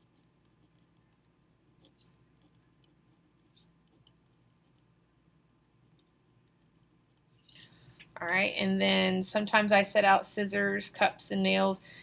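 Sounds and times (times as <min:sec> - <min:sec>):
pen writing on paper: 0:00.0 - 0:05.0.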